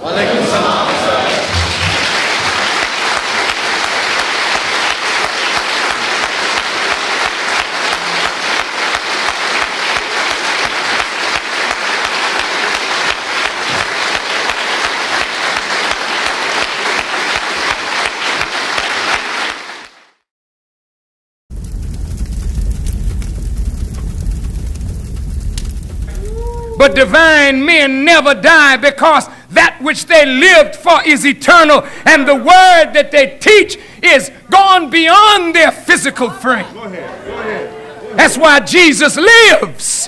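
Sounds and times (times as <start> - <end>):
audience applauding: 0.4 - 20.2, 21.6 - 27.1
low rumble: 21.5 - 27.1.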